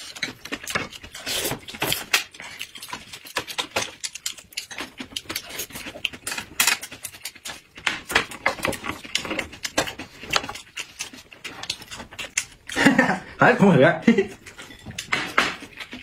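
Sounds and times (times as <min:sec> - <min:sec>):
people chewing and lip smacking: 0:00.0 - 0:16.0.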